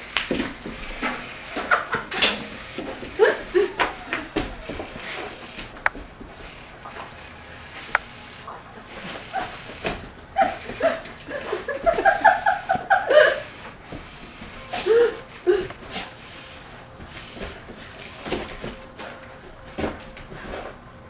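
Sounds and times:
people laughing: 0:01.5 - 0:02.2, 0:02.8 - 0:05.3, 0:08.8 - 0:13.7
toy car on carpet: 0:04.4 - 0:11.0, 0:13.4 - 0:18.7
sharp clicks: 0:07.0 - 0:08.5.

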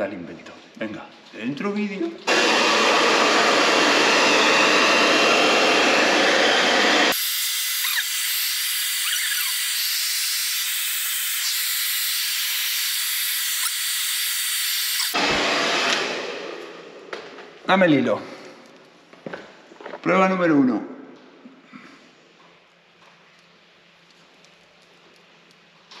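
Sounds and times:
hair dryer blowing: 0:02.3 - 0:08.2, 0:14.4 - 0:17.0.

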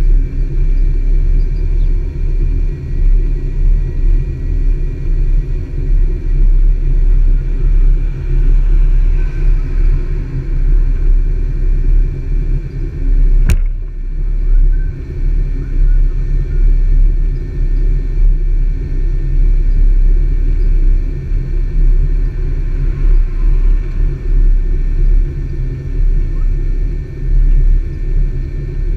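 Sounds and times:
wind buffeting microphone: 0:06.7 - 0:19.0
sharp click: 0:13.4 - 0:13.8.

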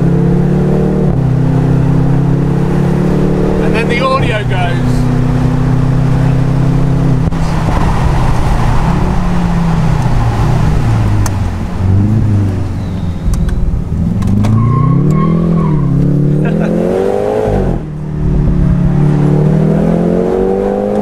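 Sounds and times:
car engine accelerating: 0:00.0 - 0:21.0
wind noise: 0:05.1 - 0:14.5.

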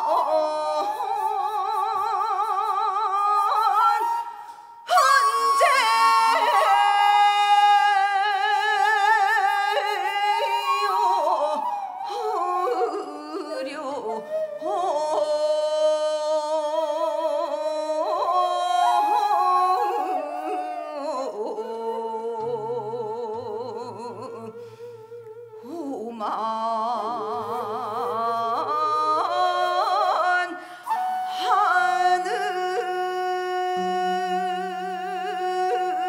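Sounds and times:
woman singing folk song: 0:00.0 - 0:36.0
singer breathing: 0:04.4 - 0:04.9, 0:24.5 - 0:25.7, 0:30.6 - 0:30.9.

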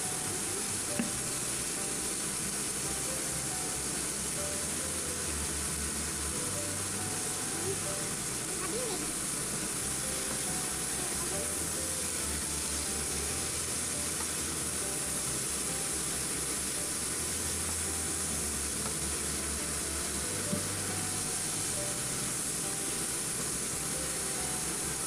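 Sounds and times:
chicken and onion sizzling in a pan: 0:00.0 - 0:25.0.

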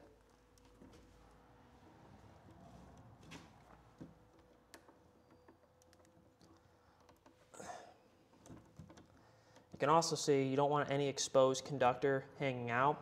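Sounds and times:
light clicks and taps: 0:02.4 - 0:07.5.

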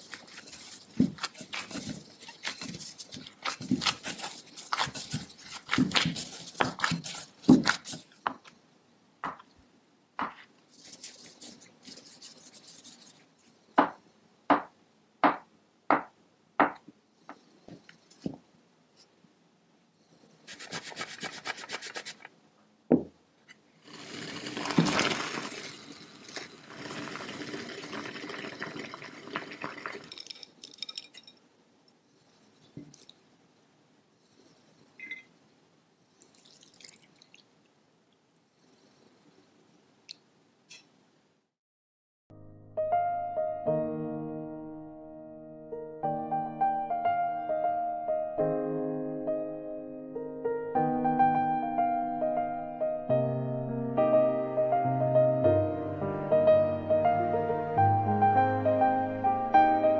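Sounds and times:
hands kneading dough in a bowl: 0:00.0 - 0:08.6
knife chopping dough on wooden board: 0:10.2 - 0:10.5
water boiling in a pot: 0:23.8 - 0:30.9.

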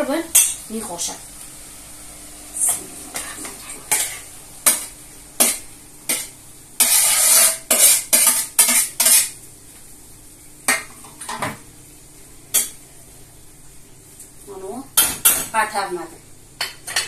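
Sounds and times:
spoon scraping in a pot: 0:02.6 - 0:09.4.

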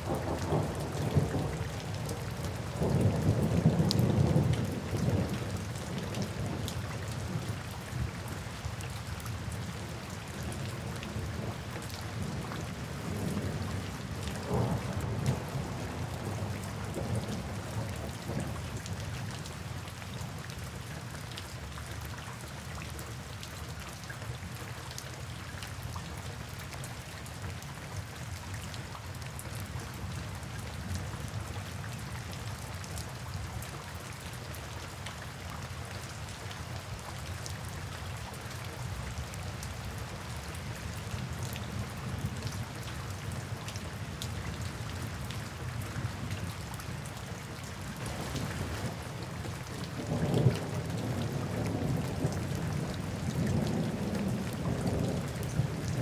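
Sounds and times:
steady rain falling: 0:00.0 - 0:56.0
low thunder rumbles: 0:47.9 - 0:56.0.

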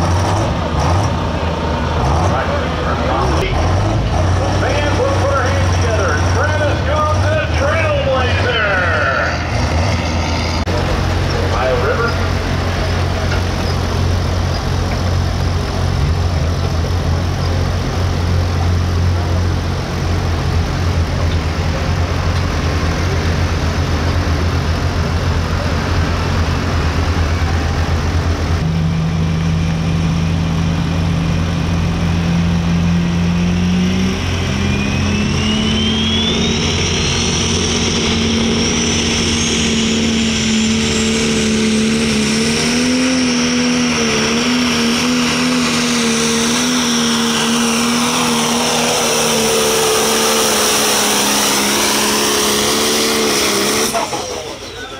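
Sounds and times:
diesel engine running hard: 0:00.0 - 0:54.9
high turbo whistle: 0:34.0 - 0:42.2.

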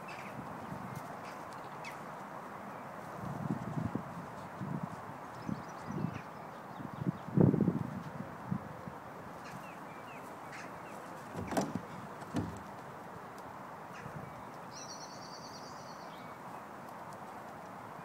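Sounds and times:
steady outdoor hiss: 0:00.0 - 0:18.0
small birds chirping: 0:09.4 - 0:12.9, 0:13.8 - 0:18.0
horse hooves thudding on turf: 0:11.1 - 0:12.9.

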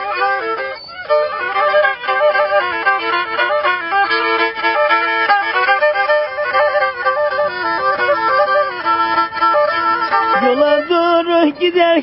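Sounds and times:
bowed string folk melody: 0:00.0 - 0:12.0.

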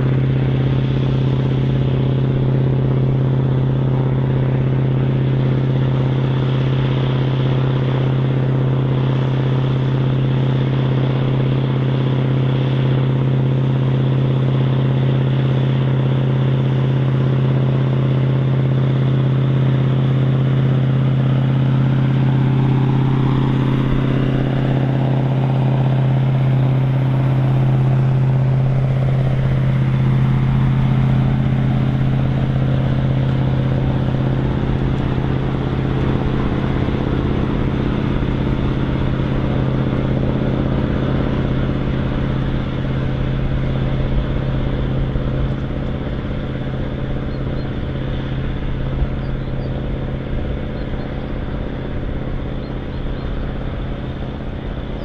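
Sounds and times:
faint engine tone rising and falling: 0:00.0 - 0:55.0
tractor diesel engine running: 0:00.0 - 0:55.0.

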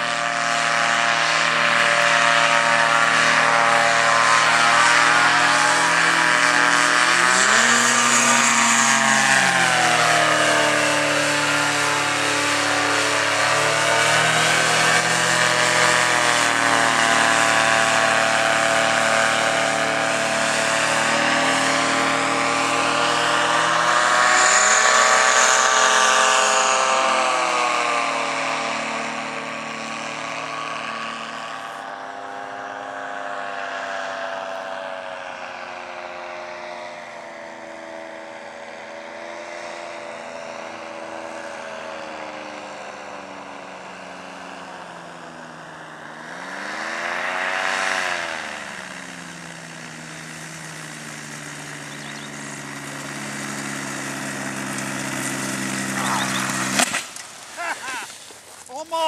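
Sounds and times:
engine and propeller droning: 0:00.0 - 0:59.0.

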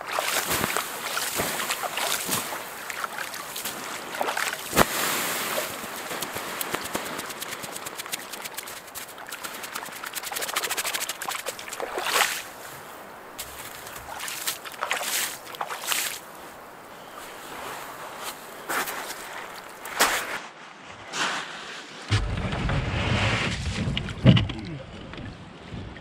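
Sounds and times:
sharp splash: 0:00.0 - 0:12.7, 0:13.4 - 0:16.3
embers hissing and crackling: 0:04.6 - 0:11.8.

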